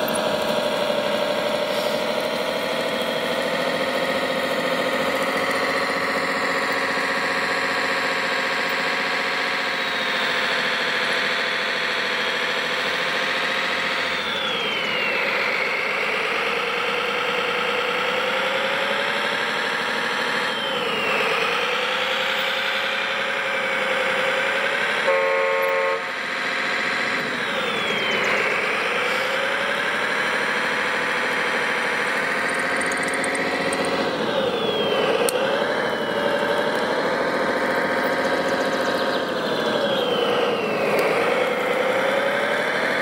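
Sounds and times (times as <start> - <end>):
model bulldozer engine: 0.0 - 43.0
short horn honk: 25.1 - 26.1.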